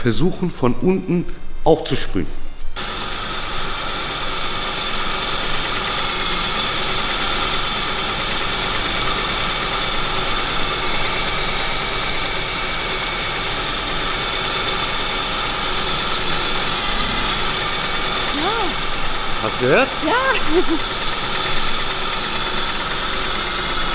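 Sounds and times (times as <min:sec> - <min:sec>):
car engine idling: 0:06.8 - 0:23.8.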